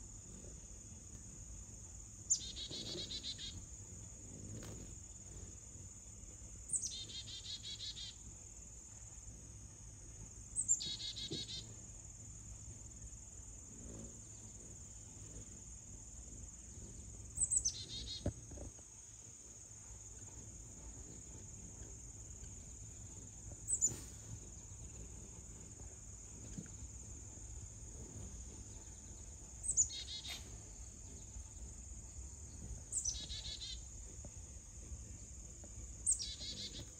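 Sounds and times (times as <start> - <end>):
bird calls: 2.3 - 3.6, 10.6 - 11.7, 29.6 - 30.6, 32.9 - 33.8, 36.0 - 36.9
high-pitched insect drone: 27.5 - 34.7, 36.0 - 36.9.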